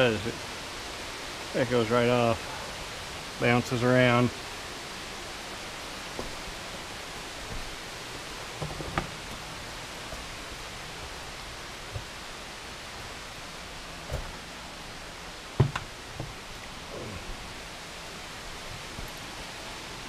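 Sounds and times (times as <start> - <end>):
creek water rushing: 0.0 - 20.0
short knocks and scuffs: 14.0 - 14.5.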